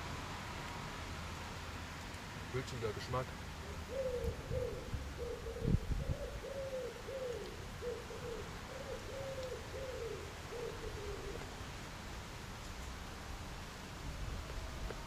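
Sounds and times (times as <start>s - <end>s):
pigeon cooing: 3.6s - 11.5s.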